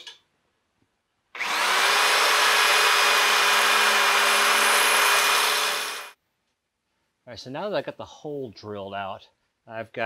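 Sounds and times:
electric drill drilling: 1.4s - 6.2s.

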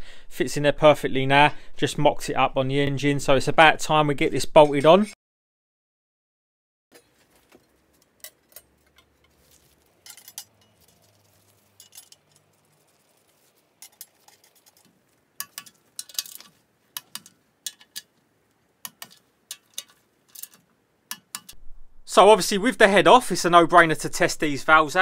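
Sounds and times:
metal tools and parts clinking: 6.9s - 18.2s, 18.8s - 21.6s.

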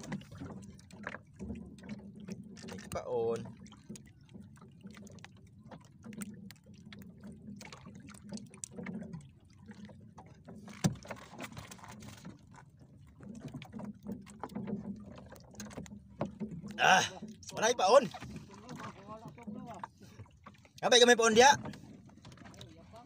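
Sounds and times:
water rumbling against hull: 0.0s - 23.0s
knocks on boat: 10.7s - 12.3s.

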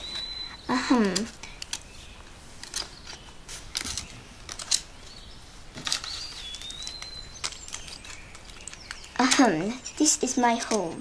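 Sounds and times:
paper rustling and tapping: 5.7s - 9.8s.

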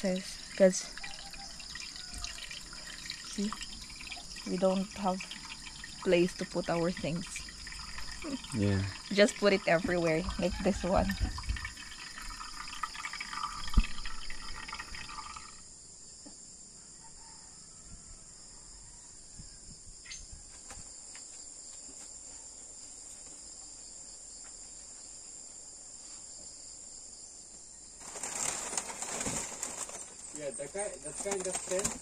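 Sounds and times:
bamboo mats rustling and scraping: 20.5s - 26.6s, 28.0s - 32.0s.

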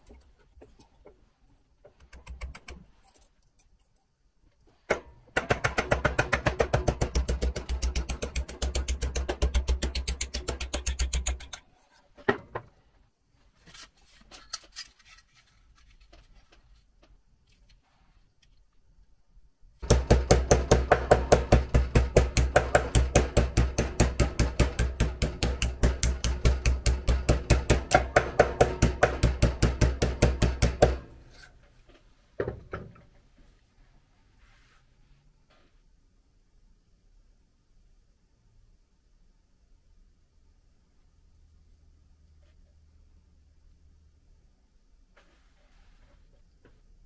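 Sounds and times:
hammer tapping on sheet steel: 4.9s - 11.6s, 19.8s - 31.2s.

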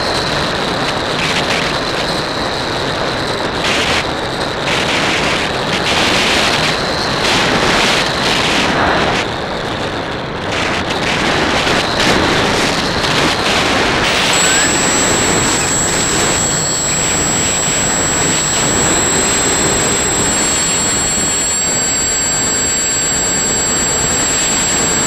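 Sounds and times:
model plane motor whine: 14.0s - 25.0s.

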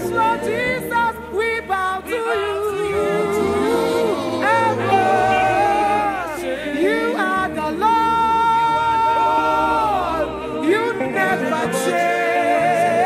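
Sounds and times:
woman singing gospel: 0.0s - 9.4s.

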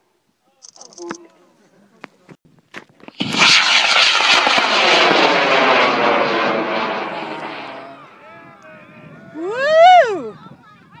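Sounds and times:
rocket motor roaring: 3.2s - 8.2s.

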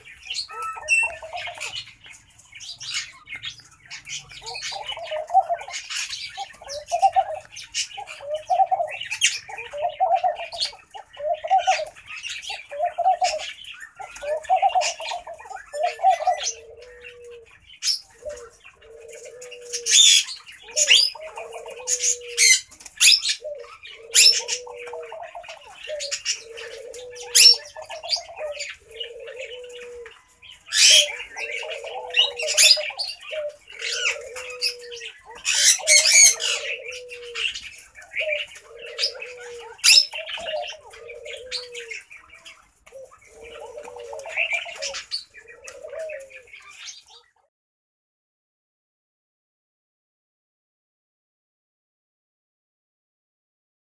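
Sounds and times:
dove cooing: 0.0s - 47.4s.

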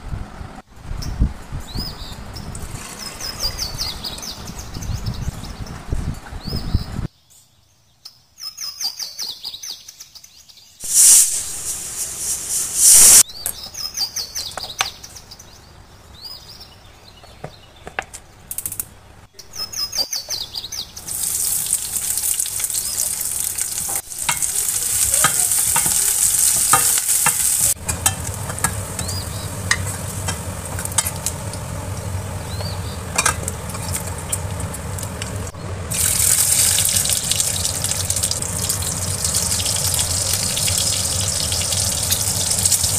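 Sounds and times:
bird chirps: 1.0s - 10.8s, 13.2s - 17.9s, 19.3s - 21.3s, 28.8s - 29.7s, 31.5s - 33.2s
short loud hisses: 10.8s - 13.2s
onions sizzling in oil: 10.8s - 13.3s, 21.0s - 42.9s.

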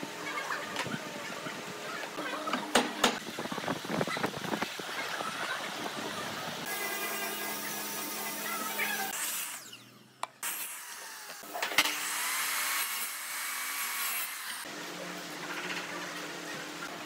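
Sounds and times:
workshop noise: 0.0s - 17.0s
miter saw cutting wood: 6.6s - 14.7s.

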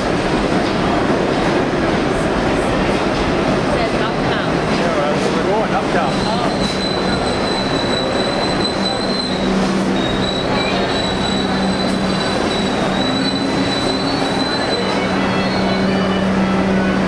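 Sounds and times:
train running din with hum: 0.0s - 17.0s
train wheels squealing: 6.0s - 16.5s.

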